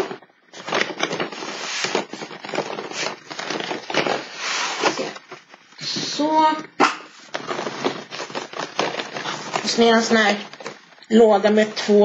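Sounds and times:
cardboard scraping on cardboard: 0.6s - 5.3s, 7.3s - 10.7s.

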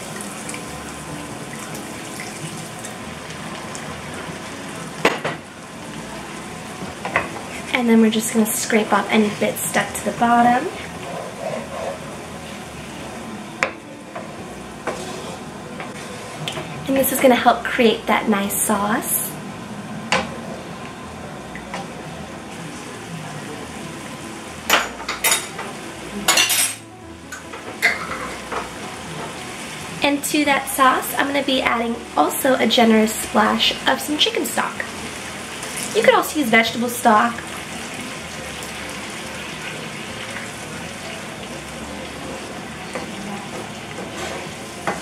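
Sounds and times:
utensil scraping a pan: 10.8s - 12.1s.

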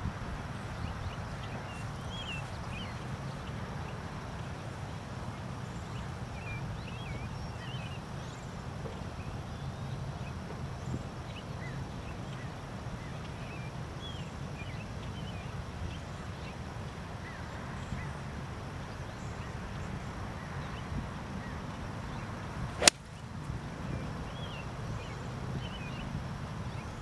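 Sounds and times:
golf club striking ball: 22.8s - 23.2s.

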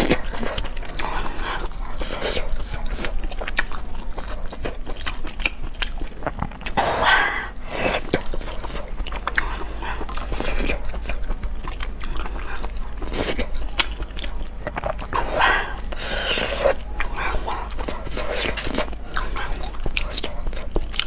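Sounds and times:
chewing and slurping: 0.0s - 21.0s.

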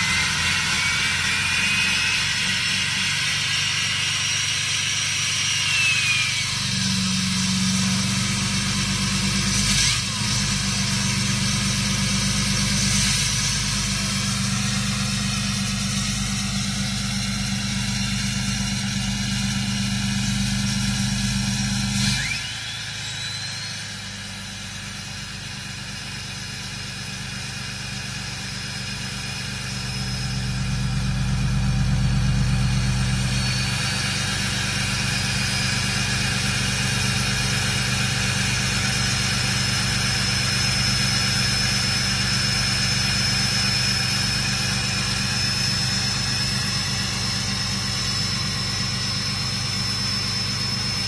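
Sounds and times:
high steady whine: 0.0s - 51.0s.

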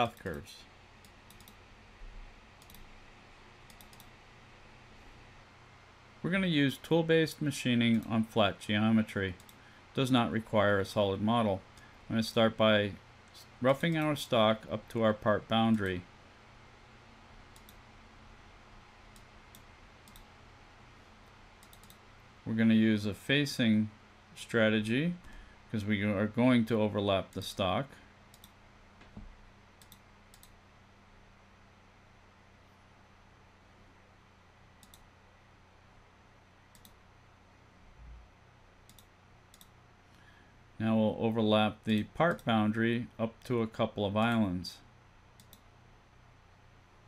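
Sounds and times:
low room hum: 0.0s - 47.0s
computer mouse clicks: 1.0s - 1.6s, 2.6s - 2.9s, 3.7s - 4.2s, 9.4s - 9.6s, 17.5s - 17.8s, 19.1s - 20.3s, 21.2s - 22.0s, 28.3s - 29.2s, 29.8s - 30.6s, 34.8s - 35.1s, 36.7s - 37.0s, 38.9s - 40.2s, 45.4s - 45.7s.

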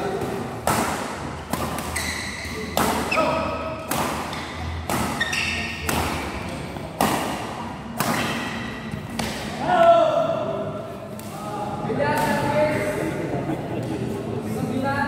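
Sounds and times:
badminton racket hitting shuttlecock: 0.2s - 9.6s.

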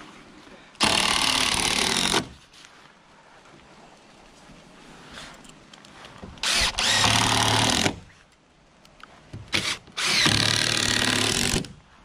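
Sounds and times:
cordless drill driving a screw: 0.8s - 2.3s, 6.4s - 8.0s, 9.5s - 11.7s.

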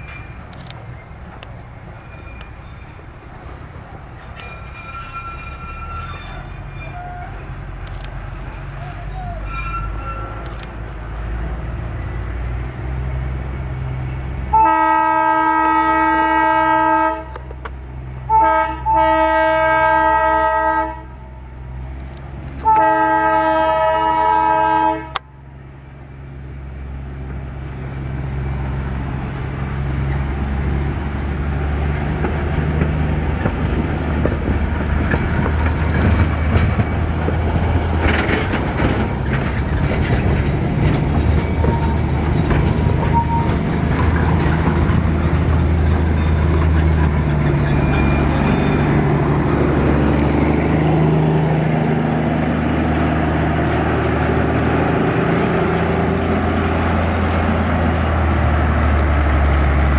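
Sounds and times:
locomotive running: 0.0s - 59.9s
train coaches rolling on rails: 0.0s - 59.9s
train horn blasts: 9.2s - 10.5s, 14.5s - 17.4s, 18.3s - 21.4s, 22.6s - 25.3s.

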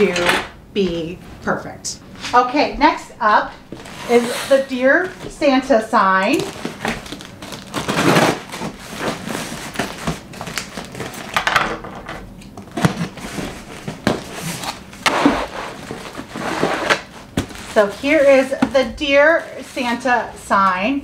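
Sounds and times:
plastic wrap crinkling: 3.7s - 5.3s, 6.1s - 11.4s, 12.7s - 20.2s
cardboard box scraped on wood: 14.4s - 17.1s.

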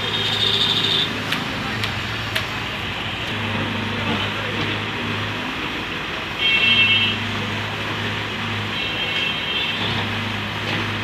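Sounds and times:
diesel engines running: 0.0s - 11.0s
vehicle horn: 6.4s - 7.2s.

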